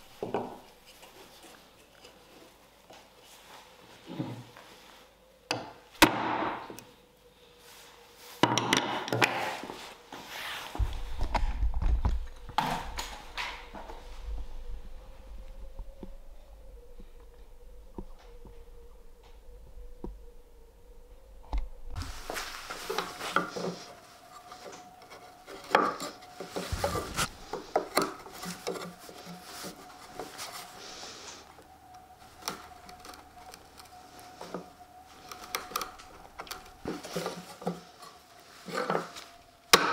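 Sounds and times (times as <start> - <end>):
low rumble: 10.8 - 22.9, 26.7 - 27.8
chisel scraping wood: 22.9 - 30.4
chisel clicking and scraping wood: 24.4 - 30.4, 32.3 - 38.2.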